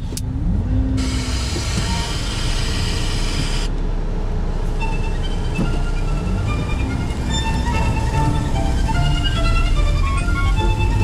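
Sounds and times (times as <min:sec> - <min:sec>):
faint car stereo music: 0:00.0 - 0:03.7, 0:04.6 - 0:11.0
engine and tyres rumbling: 0:00.0 - 0:11.0
loud hiss: 0:01.0 - 0:03.7.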